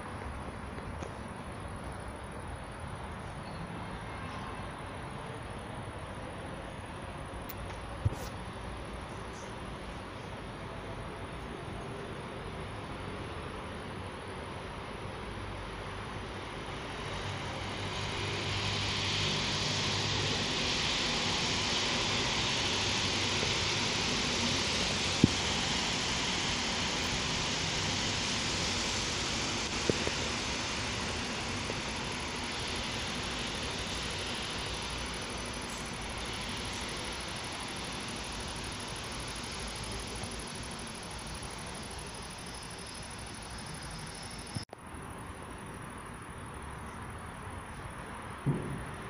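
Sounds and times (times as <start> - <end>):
train wheels on rails: 0.0 - 44.7, 47.7 - 49.0.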